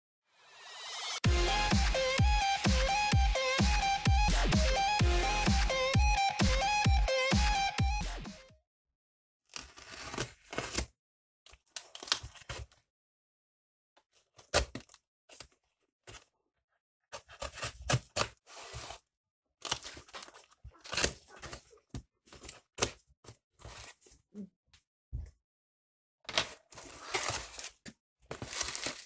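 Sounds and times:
cardboard tearing and rustling: 9.5s - 10.9s, 17.2s - 19.0s, 19.6s - 23.0s, 26.3s - 29.0s
knife slitting packing tape: 9.5s - 10.9s, 26.3s - 29.0s.

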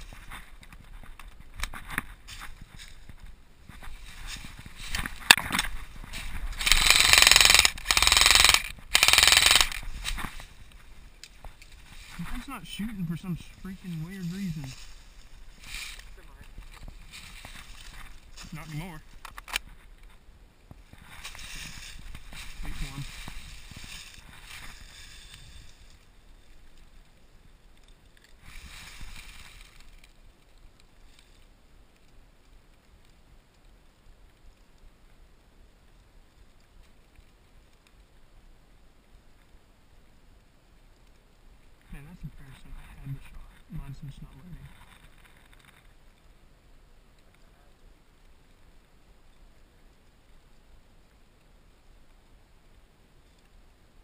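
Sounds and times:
dry leaves crunching: 1.7s - 19.2s, 20.9s - 26.7s
airsoft rifle full-auto bursts: 6.6s - 9.8s
sharp click: 6.6s - 9.8s.

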